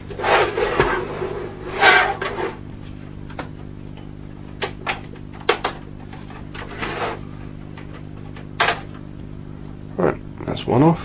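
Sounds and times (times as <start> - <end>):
plastic rustling and scraping: 0.0 - 2.6, 6.2 - 7.3
steady low hum: 0.0 - 11.0.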